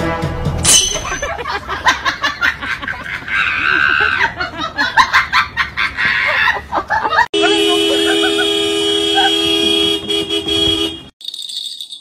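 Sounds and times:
person laughing in snickers: 0:01.3 - 0:09.4.

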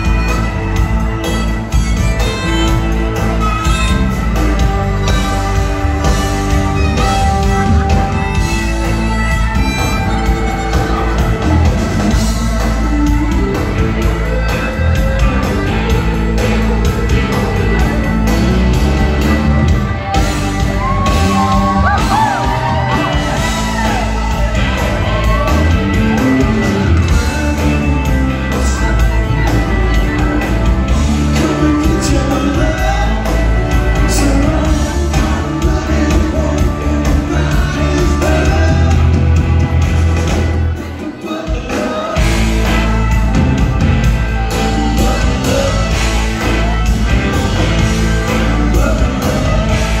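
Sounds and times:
live rock band playing: 0:00.0 - 0:50.0
audience shouting and whooping: 0:19.9 - 0:27.2
person singing: 0:20.6 - 0:39.7, 0:40.6 - 0:50.0.

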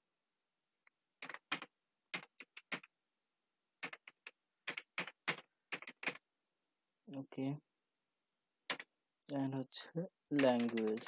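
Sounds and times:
keyboard keystrokes: 0:03.8 - 0:06.2, 0:08.7 - 0:08.9, 0:10.3 - 0:11.0.

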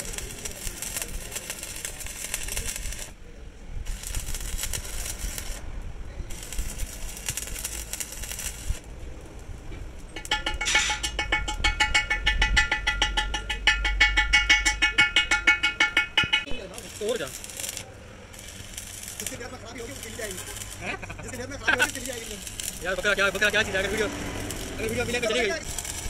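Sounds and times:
welding arc crackling: 0:00.0 - 0:03.2, 0:03.8 - 0:13.1, 0:14.1 - 0:26.0
ringing metallic taps: 0:10.1 - 0:16.6.

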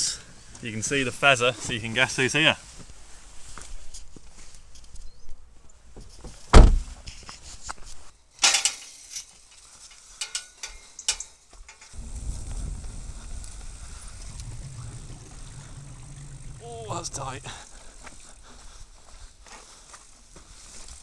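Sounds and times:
mountain bike rolling on dirt trail: 0:11.9 - 0:21.0
loud thump: 0:12.0 - 0:17.7.

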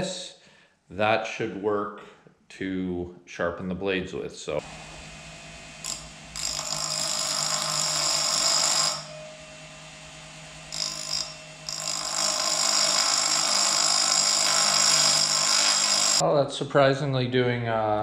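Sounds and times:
grinding disc motor hum: 0:04.6 - 0:06.6.

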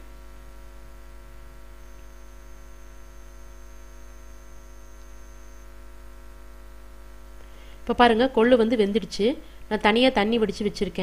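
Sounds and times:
faint hiss: 0:00.0 - 0:05.7
electrical hum: 0:00.0 - 0:11.0.

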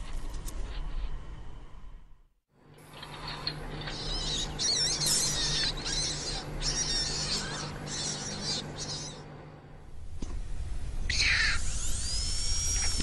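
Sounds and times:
low steady hum: 0:00.0 - 0:13.0
animal squealing: 0:03.0 - 0:09.2, 0:11.1 - 0:13.0.

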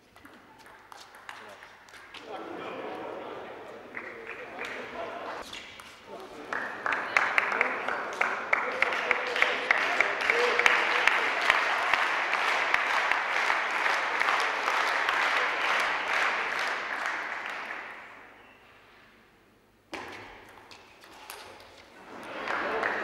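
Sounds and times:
audience applauding: 0:06.1 - 0:18.1, 0:22.0 - 0:23.0.

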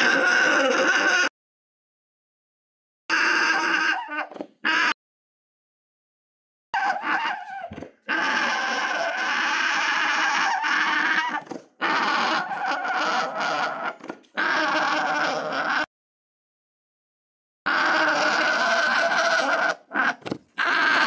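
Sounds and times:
alpaca calling: 0:00.0 - 0:01.3, 0:03.1 - 0:05.0, 0:06.8 - 0:15.9, 0:17.7 - 0:21.0.

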